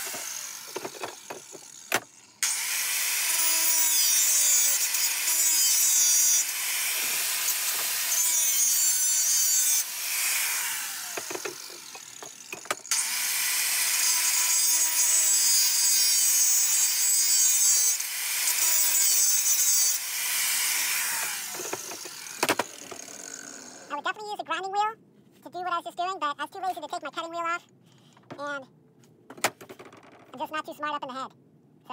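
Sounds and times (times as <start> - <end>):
angle grinder grinding metal: 0.0 - 24.0.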